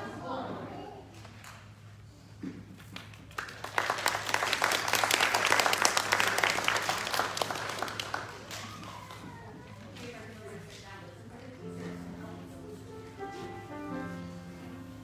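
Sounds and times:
audience applauding: 3.0 - 9.2.

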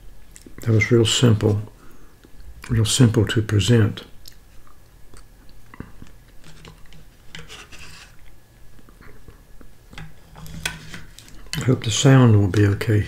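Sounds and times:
eating sounds: 4.2 - 7.0
metal spoon scraping plastic cup: 6.4 - 8.2, 10.2 - 11.4.

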